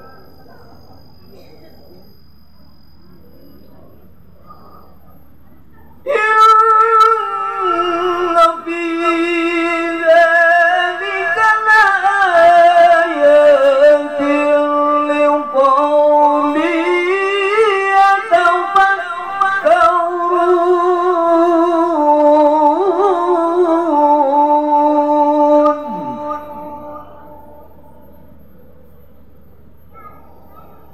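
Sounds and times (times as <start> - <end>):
man reciting melodically into microphone: 6.1 - 27.9.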